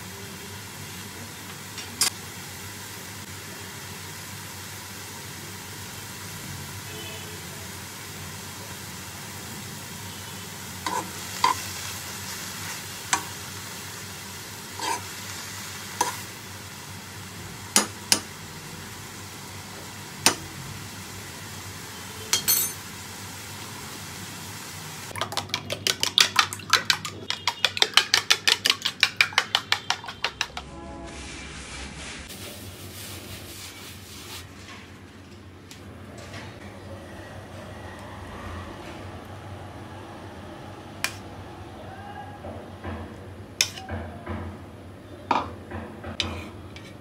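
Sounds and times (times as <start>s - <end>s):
mushrooms sizzling in a pan: 0.0s - 22.1s, 22.8s - 25.2s
whisking eggs in a bowl: 25.2s - 30.6s
spatula knocking against pan: 25.5s - 30.6s.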